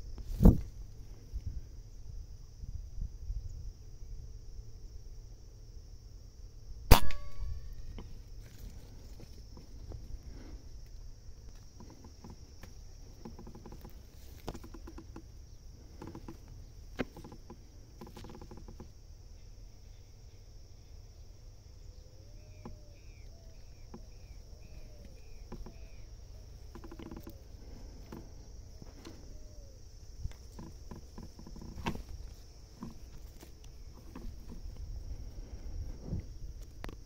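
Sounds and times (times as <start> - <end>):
high insect drone: 0.0 - 37.0
bird calling: 13.1 - 35.6.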